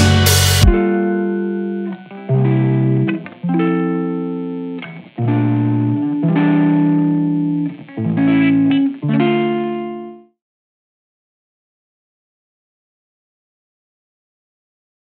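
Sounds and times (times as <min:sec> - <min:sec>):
held guitar chords: 0:00.0 - 0:10.4.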